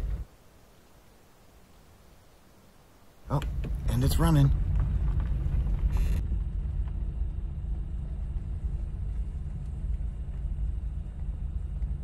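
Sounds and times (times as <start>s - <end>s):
car engine rumble: 3.2s - 12.0s.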